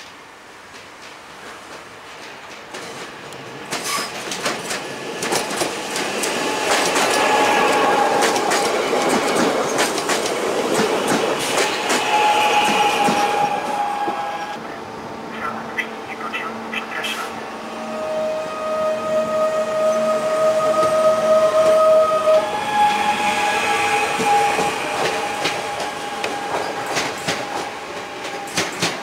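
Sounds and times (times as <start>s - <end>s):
train wheels clicking over rail joints: 0.0s - 14.2s, 23.9s - 29.0s
high train whine: 0.0s - 29.0s.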